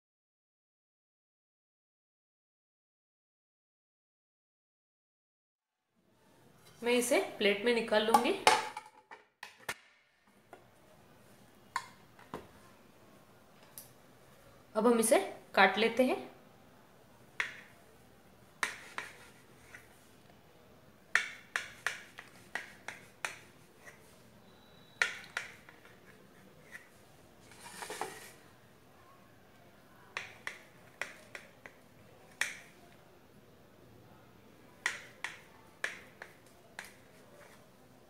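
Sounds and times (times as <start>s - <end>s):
knife scraping: 18.6s - 19.9s, 26.0s - 28.4s.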